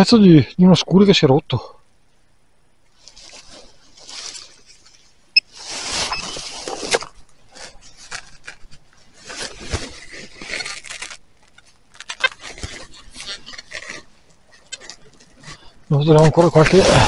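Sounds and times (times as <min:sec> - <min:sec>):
footsteps through dry grass: 0:02.9 - 0:11.2
clothing rubbing on microphone: 0:02.9 - 0:17.0.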